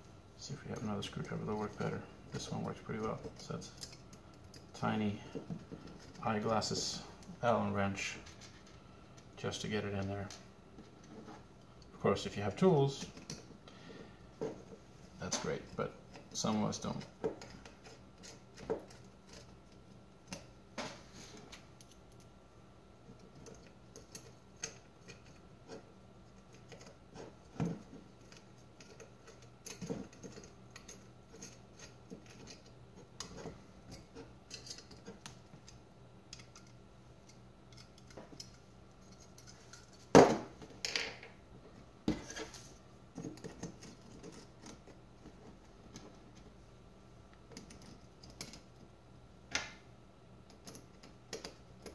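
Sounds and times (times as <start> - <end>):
small metal clicks and scrapes: 0.4 - 5.0, 8.0 - 11.9, 15.2 - 20.5, 23.1 - 40.1, 47.5 - 48.8.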